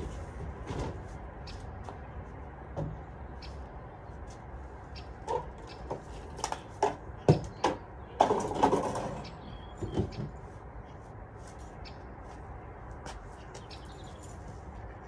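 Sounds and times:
plastic playhouse knocking and rattling: 5.3s - 9.2s, 9.8s - 10.4s.

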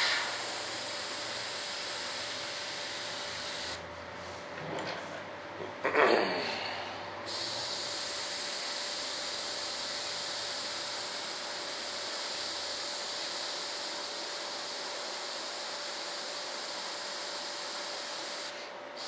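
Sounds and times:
spray gun hissing: 0.0s - 3.8s, 7.3s - 19.0s.

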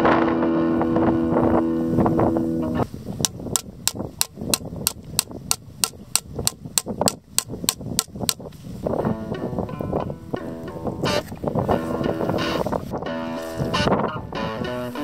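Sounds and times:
mallet knocking on stake: 3.2s - 8.4s.

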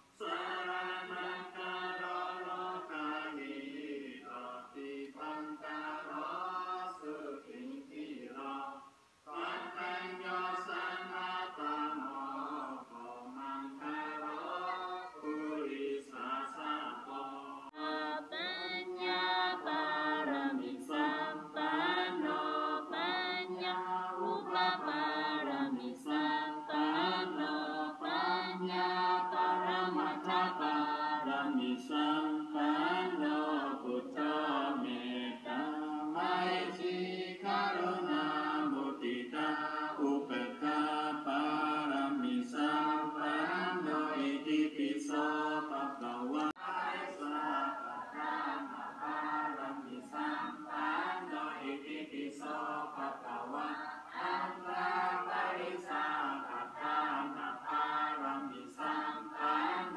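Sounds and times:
group chanting prayers in unison: 0.0s - 59.9s.

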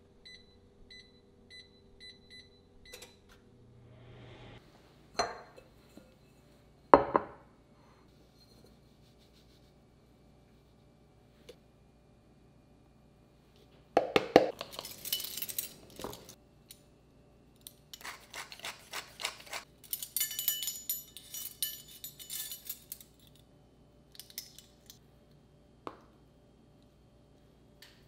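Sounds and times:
metal measuring spoons jangling: 14.6s - 16.4s, 19.8s - 23.4s.

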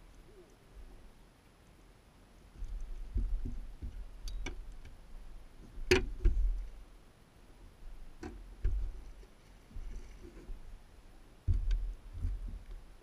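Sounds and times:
clicks and knocks on boat deck: 3.1s - 5.0s, 5.8s - 6.6s.

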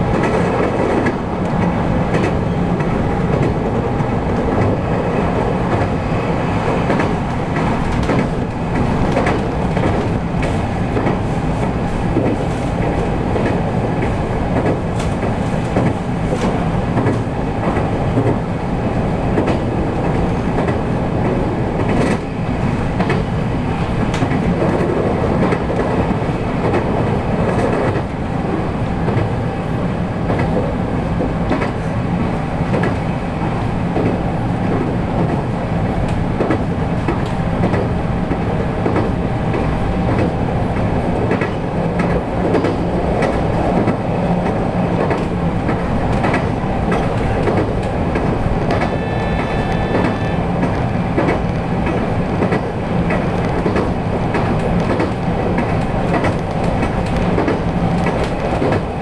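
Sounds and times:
train wheels rumbling on rail: 0.0s - 59.0s
wheels clicking over rail joints: 36.1s - 59.0s.

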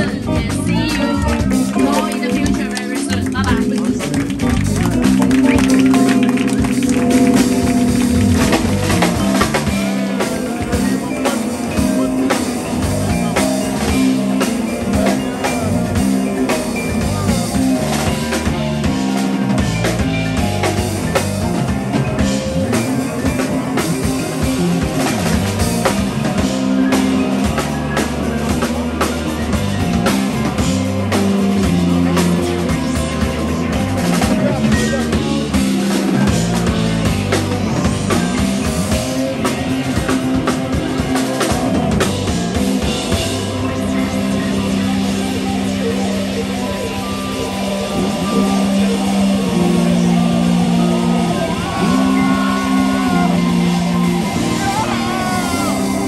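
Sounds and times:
electric bass: 0.0s - 56.0s
electric guitar: 0.0s - 56.0s
keyboards: 0.0s - 56.0s
drum kit hits: 0.1s - 46.0s, 46.6s - 56.0s.

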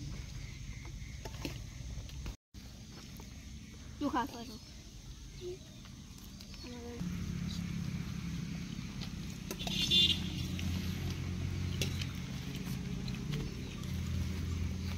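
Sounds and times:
engine humming: 5.8s - 14.9s.

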